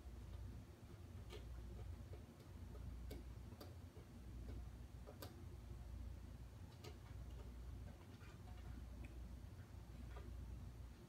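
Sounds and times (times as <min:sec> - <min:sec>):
low steady hum: 0:00.0 - 0:11.0
faint plastic clicks: 0:00.2 - 0:05.5.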